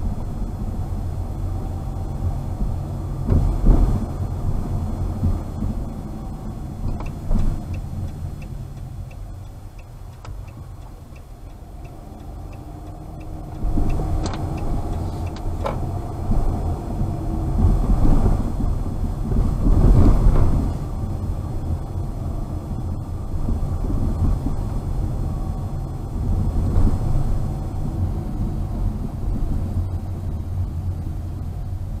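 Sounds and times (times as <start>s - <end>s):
car road and engine rumble: 0.0s - 32.0s
turn signal ticking: 4.7s - 17.0s.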